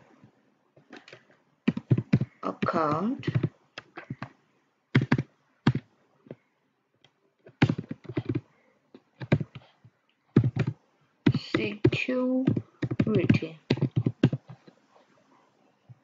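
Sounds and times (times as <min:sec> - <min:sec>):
keyboard typing clicks: 0:01.0 - 0:04.3, 0:05.0 - 0:05.8, 0:07.5 - 0:08.4, 0:09.2 - 0:09.6, 0:10.4 - 0:14.8.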